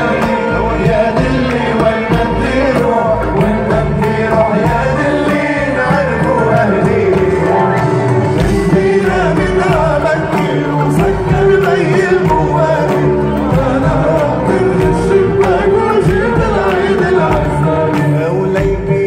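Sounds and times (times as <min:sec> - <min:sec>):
bass line: 0:00.0 - 0:19.0
man singing: 0:00.0 - 0:19.0.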